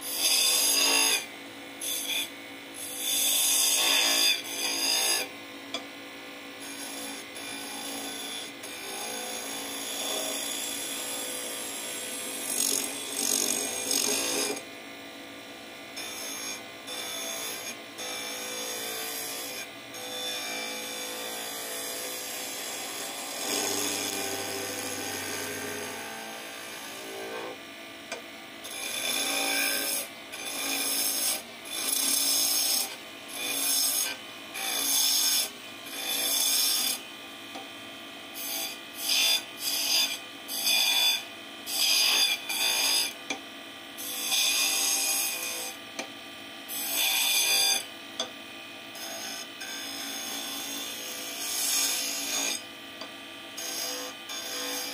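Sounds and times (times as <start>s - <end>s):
lathe tool scraping wood: 3.0s - 5.3s, 6.6s - 14.6s, 16.0s - 27.6s.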